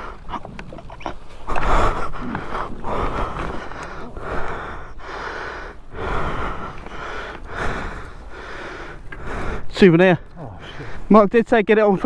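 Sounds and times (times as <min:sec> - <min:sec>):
person breathing hard: 0:00.0 - 0:00.3, 0:01.5 - 0:09.7.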